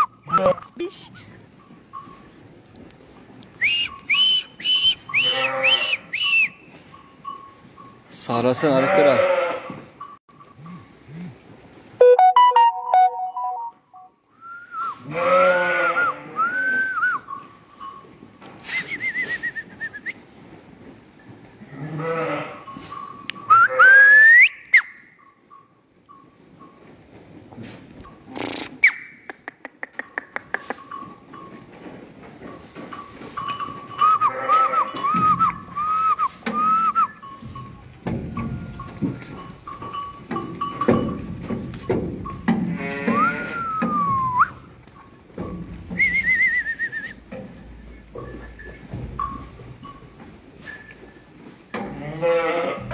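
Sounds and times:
person whistling: 3.6 - 5.1, 6.1 - 6.6, 14.4 - 15.0, 16.4 - 17.2, 18.6 - 20.2, 23.5 - 24.9, 35.1 - 37.2, 43.2 - 44.6, 46.0 - 47.2
sheep bleating: 5.2 - 6.0, 8.7 - 9.9, 15.0 - 16.5, 21.7 - 22.7, 42.7 - 43.8, 51.9 - 52.9.

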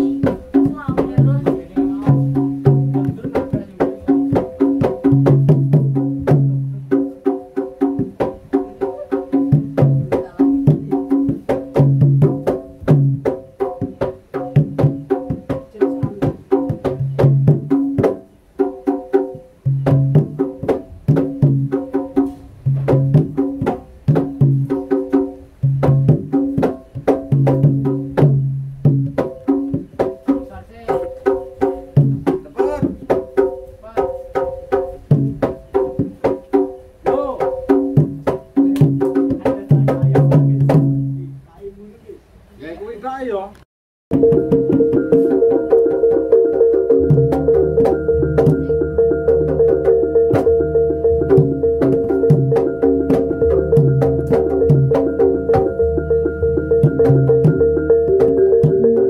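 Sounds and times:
rapid drum strikes: 0.0 - 41.5, 44.1 - 59.0
pitched percussion tones: 0.0 - 41.6, 44.1 - 59.0
low percussion note: 44.1 - 59.0.

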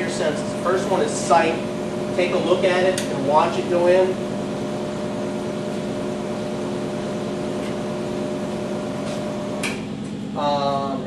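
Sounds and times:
lathe motor hum and whine: 0.0 - 11.0
sharp click: 9.6 - 9.8.

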